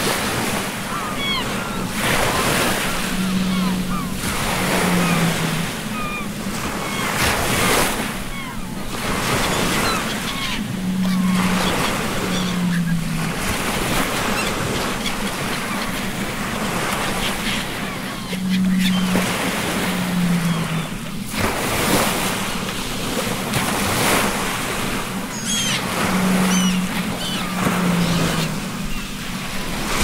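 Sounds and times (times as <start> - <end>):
sea waves breaking: 0.0 - 30.0
wind: 0.0 - 30.0
faint high calls: 0.4 - 22.0, 24.9 - 29.8
low two-note tone: 10.3 - 13.5.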